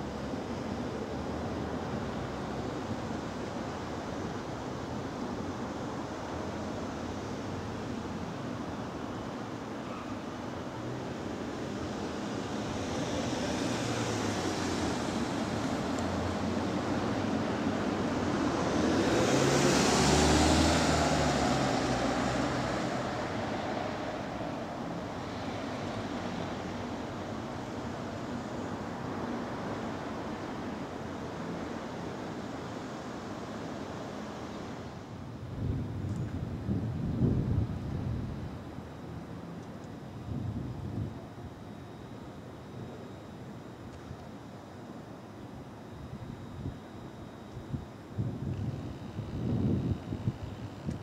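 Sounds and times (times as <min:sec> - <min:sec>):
electric train rolling in: 0:10.6 - 0:39.2.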